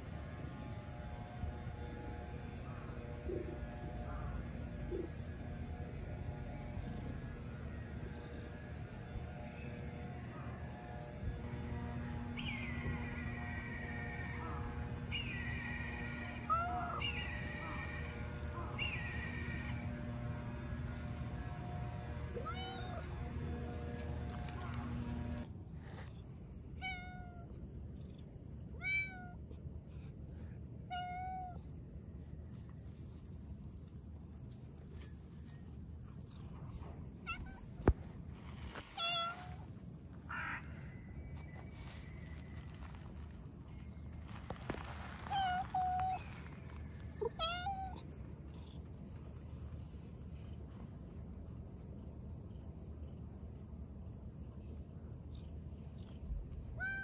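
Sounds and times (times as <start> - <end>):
cat meowing: 28.8 - 29.4, 30.9 - 31.6, 47.3 - 48.1, 56.8 - 57.0.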